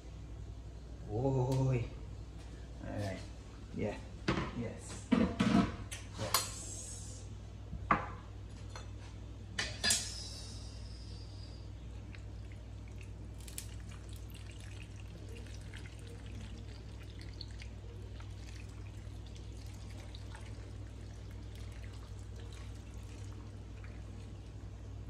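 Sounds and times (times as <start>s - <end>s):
thick sauce pouring and dripping: 12.0s - 24.7s
small wet splats and clicks: 12.9s - 14.2s.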